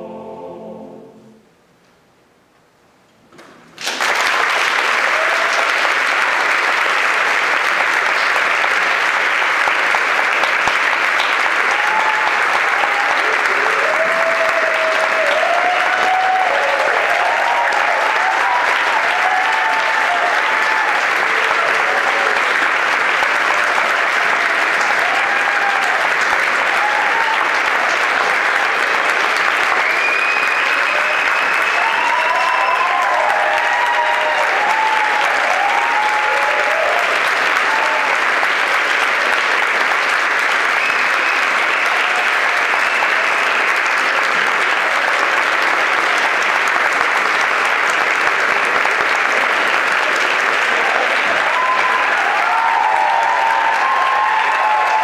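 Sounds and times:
audience applause: 3.8s - 55.0s
cheers and whoops: 5.0s - 6.5s, 11.6s - 22.5s, 23.1s - 28.8s, 29.6s - 38.5s, 40.6s - 44.0s, 50.6s - 55.0s.

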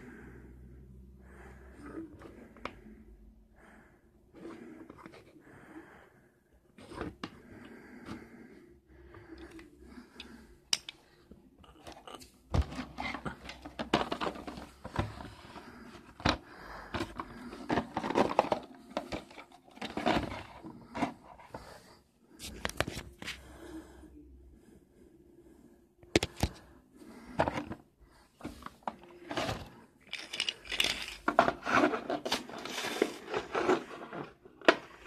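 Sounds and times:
plastic and cardboard crinkling: 12.6s - 21.2s, 28.4s - 35.0s.

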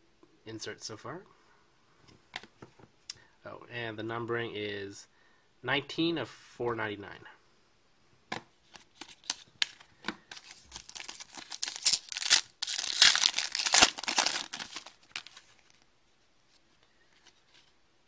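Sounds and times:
foil wrapper tearing and crinkling: 9.0s - 15.5s.

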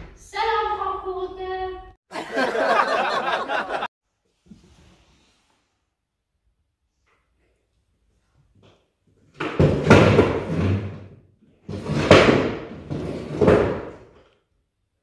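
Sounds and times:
sharp bangs of furniture: 9.4s - 11.1s, 11.7s - 14.1s
chairs and tables scraping: 9.6s - 14.0s.

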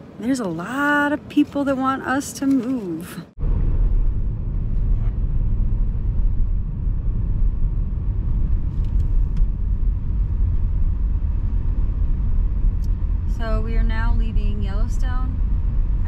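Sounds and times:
car engine and tyre rumble: 0.0s - 16.0s.

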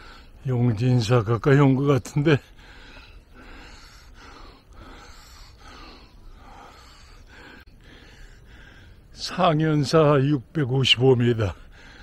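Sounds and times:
man breathing heavily: 0.0s - 0.4s, 2.4s - 9.1s, 11.6s - 12.0s.

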